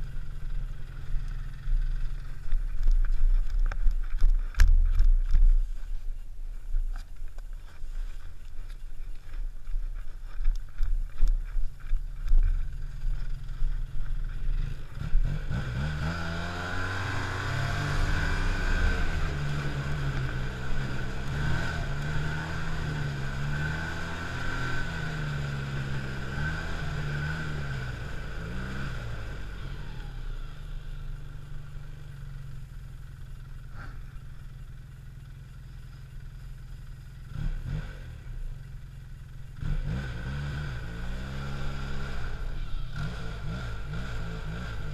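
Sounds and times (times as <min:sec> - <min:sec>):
snowmobile engine: 0:07.7 - 0:31.2, 0:39.5 - 0:44.9.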